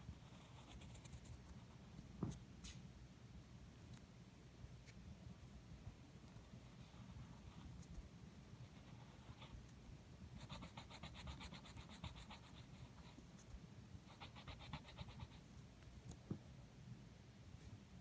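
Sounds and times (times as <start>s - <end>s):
pencil scratching on paper: 10.4s - 13.2s, 14.1s - 15.4s.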